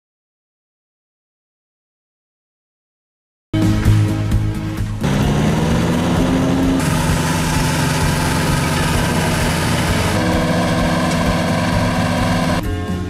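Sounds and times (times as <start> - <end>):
ride-on mower engine droning: 5.0 - 12.6.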